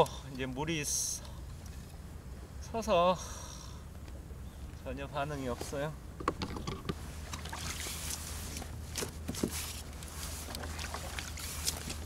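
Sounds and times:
water lapping against a hull: 7.0 - 12.0.

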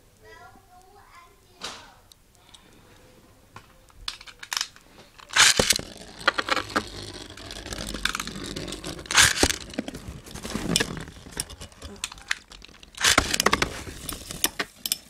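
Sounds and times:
spinning top clicks: 4.1 - 15.0
ripcord launcher zips: 5.2 - 9.8, 12.3 - 13.9.

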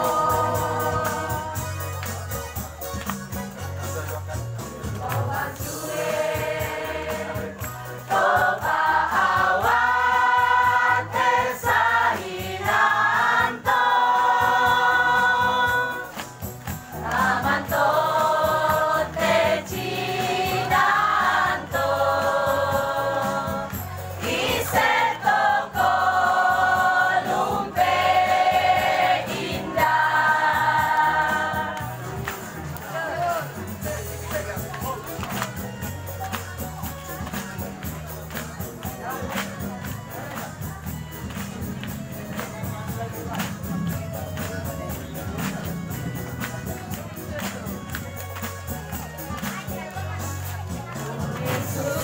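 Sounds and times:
choir singing long notes: 0.0 - 1.6, 5.3 - 16.1, 17.0 - 32.0.

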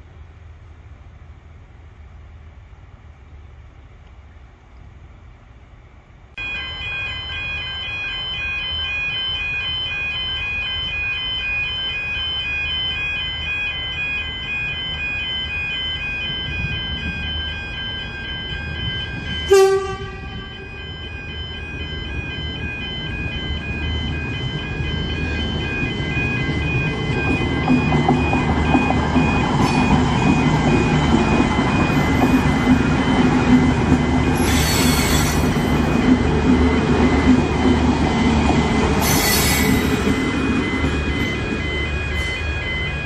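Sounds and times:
train rumble: 0.0 - 43.0
level crossing alarm: 6.4 - 43.0
train horn toot: 19.5 - 20.7.

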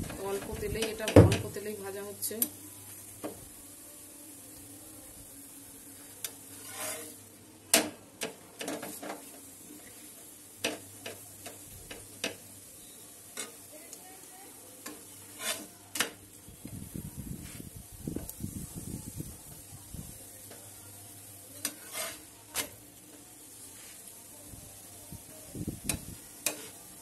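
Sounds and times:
faint sizzle of frying: 0.0 - 27.0
spatula scraping frying pan: 6.2 - 7.2, 14.8 - 16.2, 21.6 - 22.8, 26.4 - 26.8.

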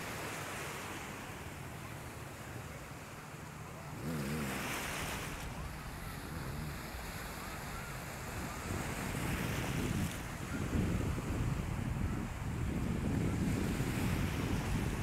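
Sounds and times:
small waves breaking on shore: 0.0 - 15.0
wind buffeting microphone: 5.0 - 15.0.

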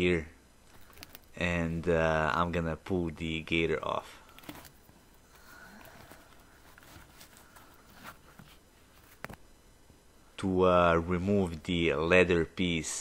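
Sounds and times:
soft leather rustling: 4.3 - 9.4.

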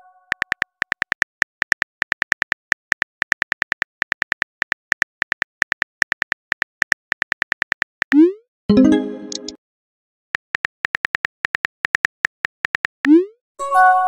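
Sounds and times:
phone keyboard typing clicks: 0.3 - 8.2, 10.4 - 13.0.

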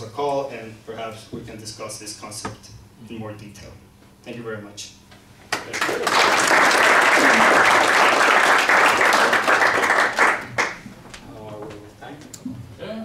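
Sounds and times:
audience applauding: 5.5 - 10.8.

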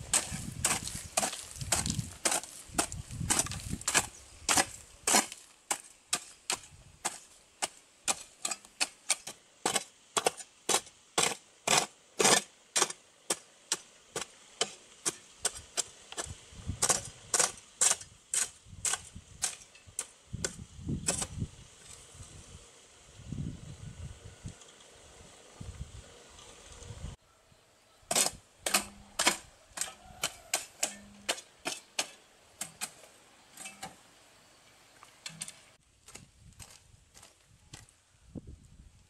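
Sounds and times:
hand tool striking wood: 0.0 - 21.4, 28.1 - 34.0.

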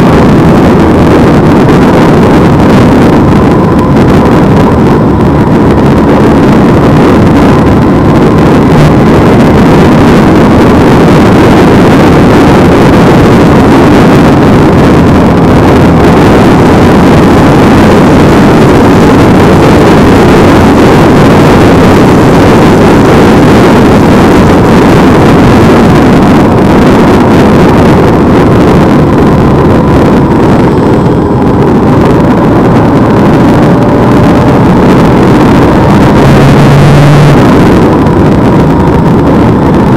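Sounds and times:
motorcycle engine running: 0.0 - 39.9
wind rushing over microphone: 0.0 - 39.9.

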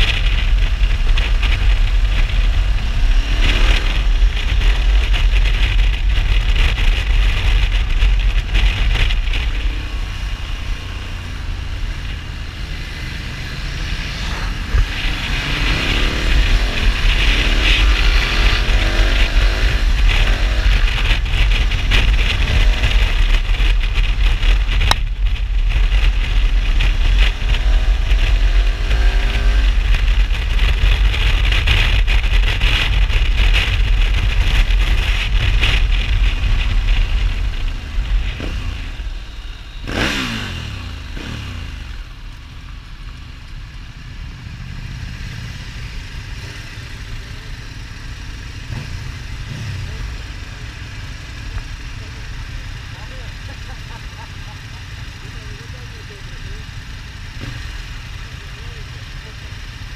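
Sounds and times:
wind rush on microphone: 0.0 - 42.2
motorcycle engine: 0.0 - 59.9.

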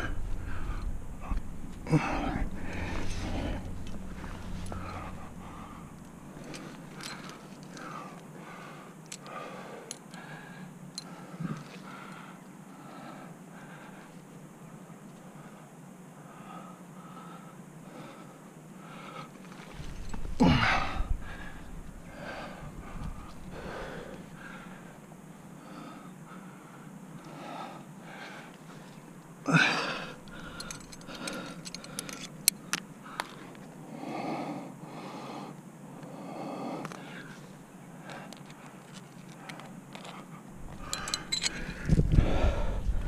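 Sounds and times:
heavy rhythmic breathing: 0.0 - 43.0
metallic carabiner clicks: 30.2 - 33.4, 40.7 - 41.8.

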